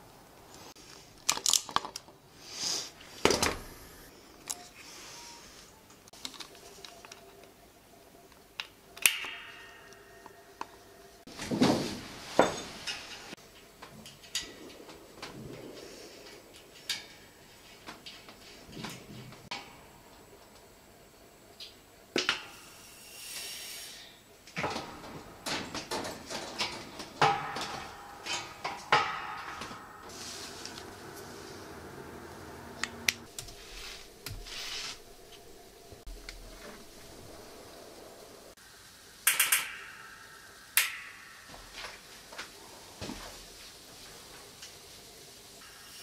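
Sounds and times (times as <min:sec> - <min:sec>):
brief air hiss: 0:02.4 - 0:03.0, 0:22.6 - 0:24.2, 0:33.5 - 0:35.1.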